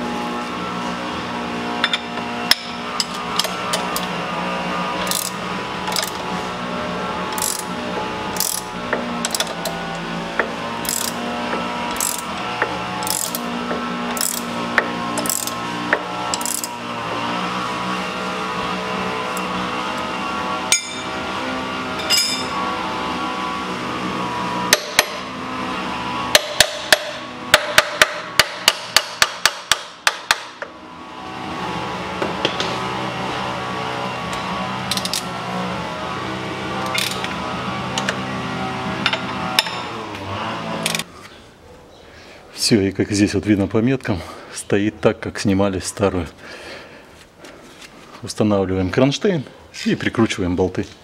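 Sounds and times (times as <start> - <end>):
ratchet wrench clicking: 5.0 - 6.2, 7.3 - 7.7, 8.4 - 9.8, 10.8 - 11.2, 11.9 - 12.4, 13.0 - 13.4, 14.1 - 14.5, 15.2 - 15.6, 16.3 - 16.7, 34.9 - 35.2.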